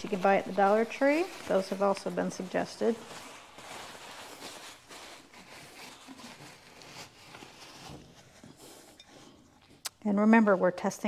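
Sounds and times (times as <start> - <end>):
pad crinkling and rustling: 0.0 - 10.5.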